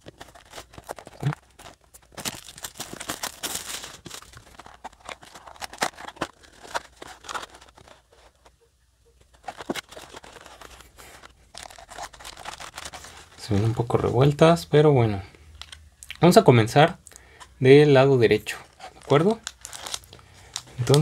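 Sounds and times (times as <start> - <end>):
cardboard and foil crinkling: 0.0 - 8.6, 9.3 - 14.4, 18.4 - 21.0.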